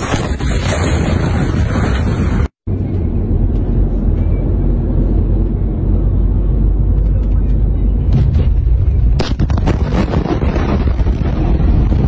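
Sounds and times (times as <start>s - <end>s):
car road and engine noise: 2.7s - 9.1s.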